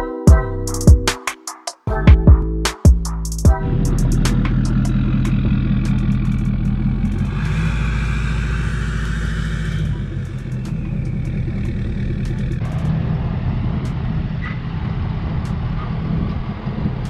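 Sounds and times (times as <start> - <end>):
diesel engine under throttle: 3.6 - 17.0
turbocharger whistle: 3.7 - 17.0.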